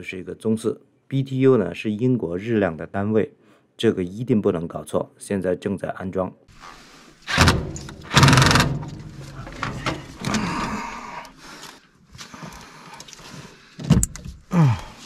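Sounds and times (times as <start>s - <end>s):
metal scraping: 6.6s - 10.4s
sharp knocks: 7.3s - 10.2s
rapid rattle of tools: 7.3s - 10.7s.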